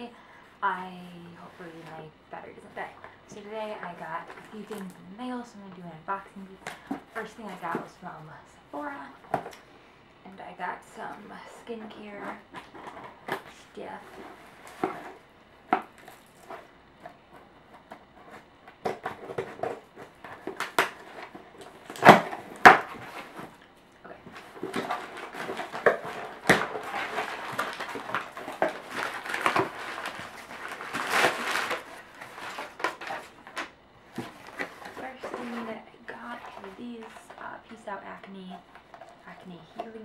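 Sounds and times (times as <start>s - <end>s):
packing paper rustling: 11.4s - 40.0s.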